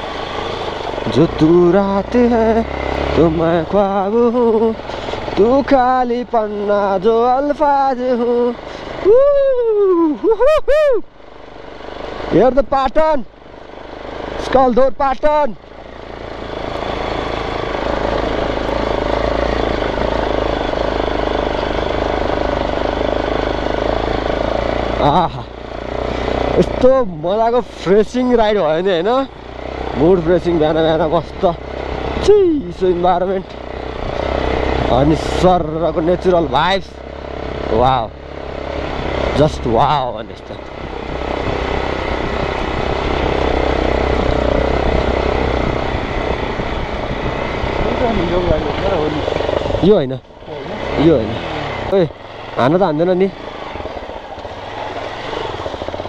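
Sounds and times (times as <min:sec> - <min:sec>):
motorcycle engine running: 0:00.0 - 0:56.0
road and wind noise: 0:00.0 - 0:56.0
wind noise: 0:44.1 - 0:49.9.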